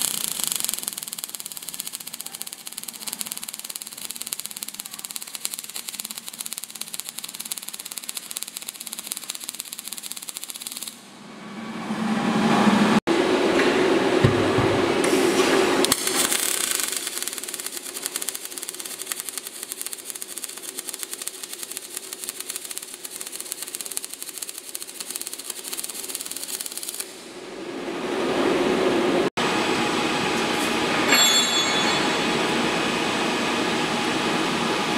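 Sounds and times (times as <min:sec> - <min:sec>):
welding arc crackling: 0:00.0 - 0:11.2, 0:15.0 - 0:27.5.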